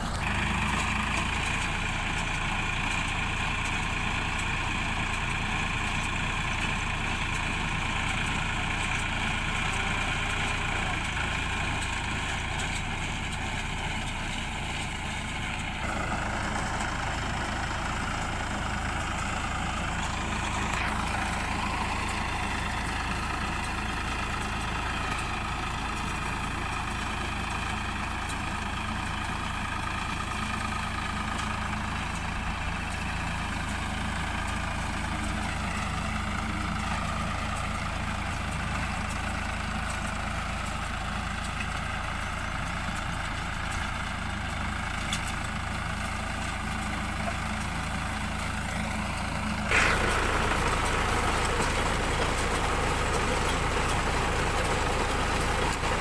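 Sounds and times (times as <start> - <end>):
baler working: 0.0 - 56.0
tractor diesel engine running: 0.0 - 56.0.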